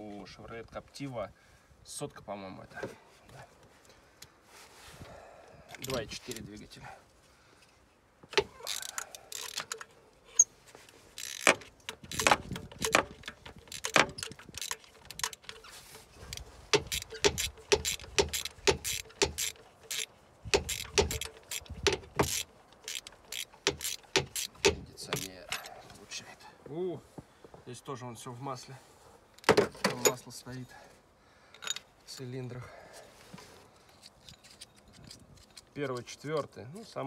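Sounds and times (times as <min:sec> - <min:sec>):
socket ratchet wrench clicking: 0:08.4 - 0:09.8, 0:11.2 - 0:15.7, 0:16.3 - 0:25.3.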